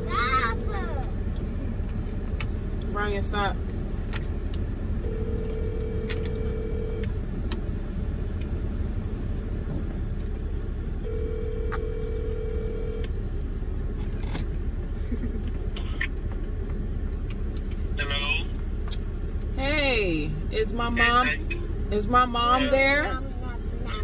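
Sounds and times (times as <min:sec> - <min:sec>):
low rumble of car interior: 0:00.0 - 0:24.0
telephone ringback tone: 0:05.0 - 0:07.1, 0:11.0 - 0:13.1.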